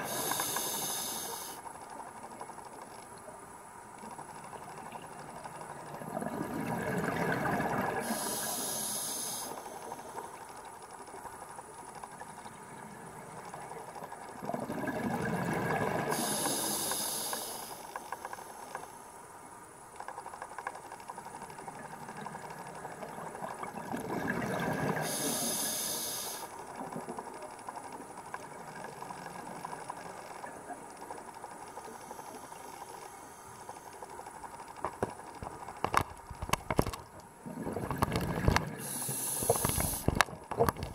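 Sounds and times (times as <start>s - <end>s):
regulator valve hiss: 0.0s - 1.6s, 8.0s - 10.1s, 16.1s - 18.9s, 25.0s - 26.5s, 38.8s - 40.1s
bubbling exhaled air underwater: 5.8s - 9.4s, 14.4s - 17.7s, 22.0s - 26.2s, 37.4s - 40.9s.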